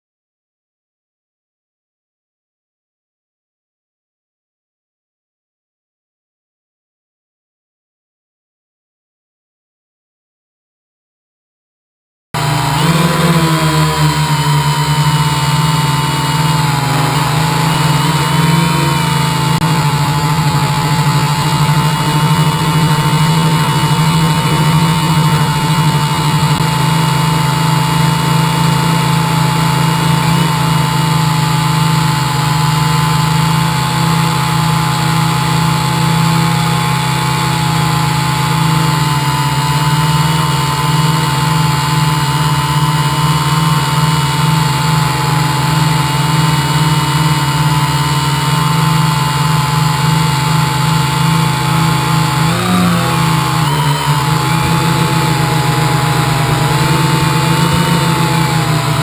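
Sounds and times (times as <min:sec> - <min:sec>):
quadcopter motors and propellers: 0:12.4 - 0:59.0.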